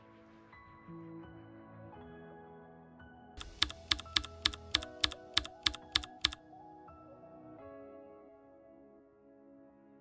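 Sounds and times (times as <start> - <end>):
soft music with sustained tones: 0.0 - 10.0
keyboard typing clicks: 3.4 - 6.4.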